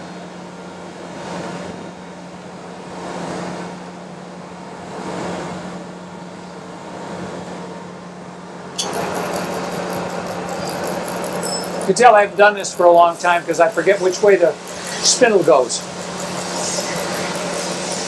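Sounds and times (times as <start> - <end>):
grinder motor hum: 8.8 - 18.0
grinding noise: 8.8 - 18.0
loud bright grinding noise: 8.8 - 18.0.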